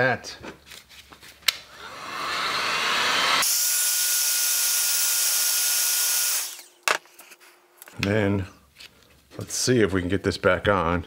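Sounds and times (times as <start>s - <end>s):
heat gun blowing: 1.6s - 6.9s.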